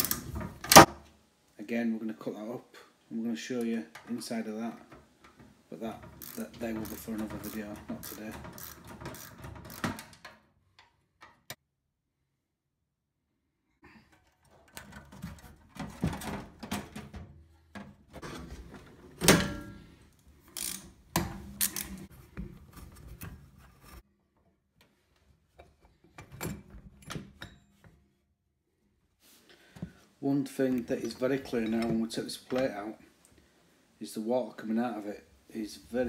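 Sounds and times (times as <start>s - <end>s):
metal parts knocking and clattering: 5.2s - 10.4s
ratchet handle clicking: 6.2s - 10.3s, 20.6s - 20.9s.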